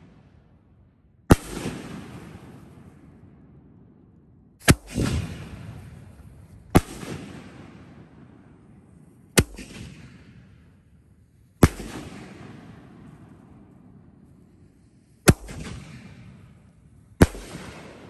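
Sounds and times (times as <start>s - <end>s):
firework shell booms: 4.6s - 8.3s
rumbling echo: 4.7s - 11.0s.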